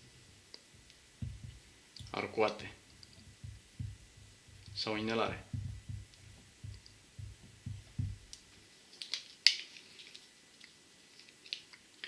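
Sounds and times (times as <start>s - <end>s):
marker writing on whiteboard: 0.8s - 8.5s.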